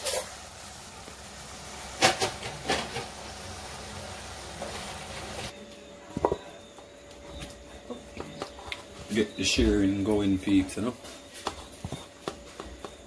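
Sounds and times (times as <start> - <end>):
fish sizzling in a frying pan: 0.0 - 5.5.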